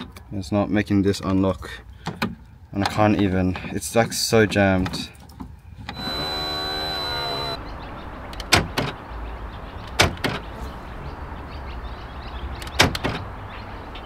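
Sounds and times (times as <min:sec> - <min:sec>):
small electric motor whining: 0:05.9 - 0:07.7.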